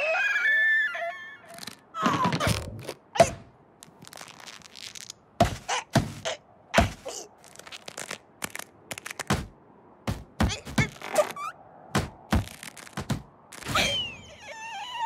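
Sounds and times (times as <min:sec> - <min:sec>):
cartoon thuds and knocks: 0:05.4 - 0:07.0, 0:09.3 - 0:11.0, 0:11.9 - 0:13.8.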